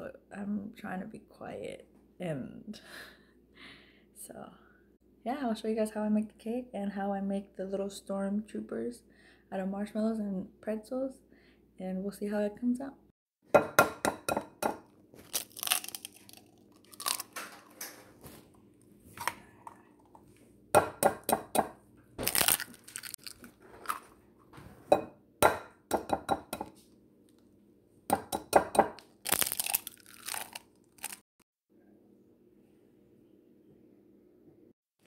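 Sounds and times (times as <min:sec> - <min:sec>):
packaging crinkling and tearing: 0:15.2 - 0:17.7, 0:22.2 - 0:24.1, 0:29.1 - 0:31.2.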